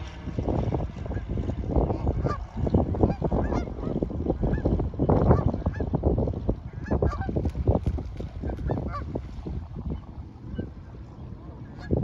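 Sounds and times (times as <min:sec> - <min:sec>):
geese honking: 0:02.1 - 0:02.4, 0:03.0 - 0:03.9, 0:08.4 - 0:09.1.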